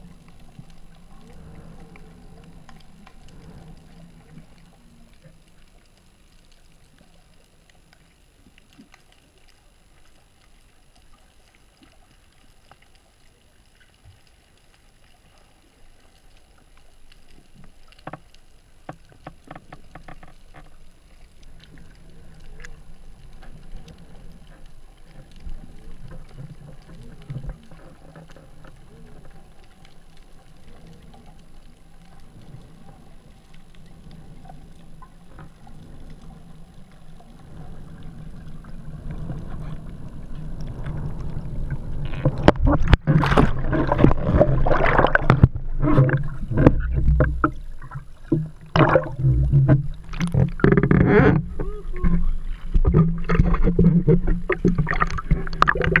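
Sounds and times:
faint ticks: 0.0s - 56.0s
low underwater hum: 0.0s - 56.0s
rushing and gurgling water: 30.3s - 56.0s
knocks and splashes: 42.2s - 56.0s.

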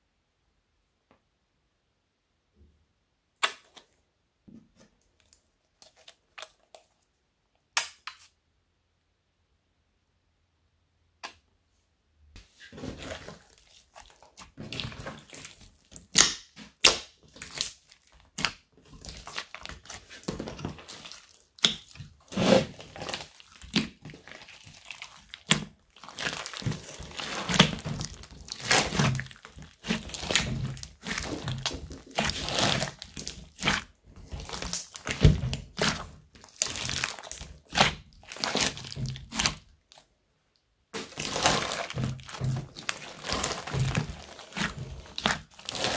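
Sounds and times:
slime squelching: 4.7s - 7.1s, 12.4s - 40.1s, 40.9s - 45.9s
crunchy foam bead crackles: 17.2s - 40.0s, 41.0s - 45.9s.

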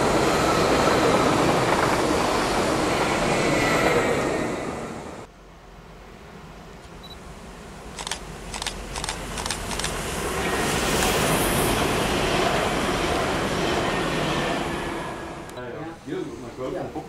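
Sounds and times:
train passing at speed: 0.0s - 6.6s, 7.2s - 17.0s
sharp clicks: 8.0s - 10.0s.

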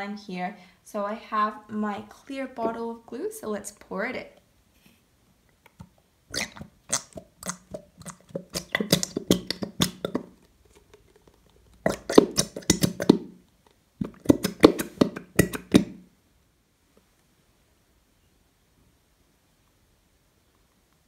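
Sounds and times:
squeeze bottle sputtering glue: 5.7s - 13.4s, 14.0s - 16.0s.

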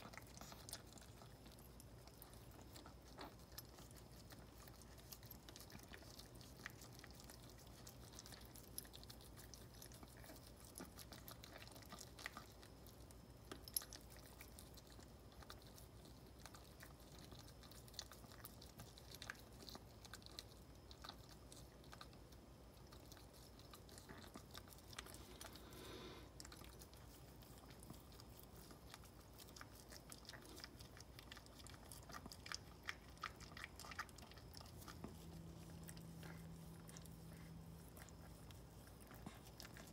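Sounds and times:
dog licking puppies: 0.0s - 39.9s.

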